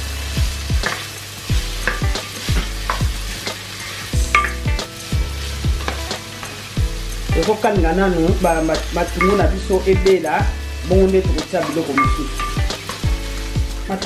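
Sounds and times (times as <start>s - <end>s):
onions sizzling in oil: 0.0s - 14.0s.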